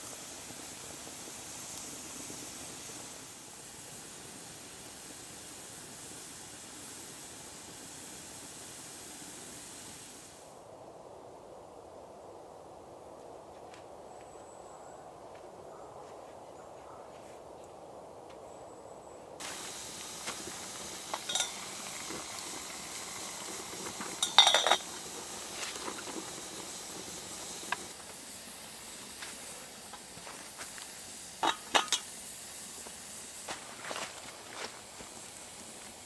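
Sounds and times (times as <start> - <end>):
kettle hissing and sizzling: 0.0 - 10.8, 19.4 - 36.0
kettle handle and lid clanking: 21.1 - 22.1, 24.1 - 25.1, 31.4 - 32.1.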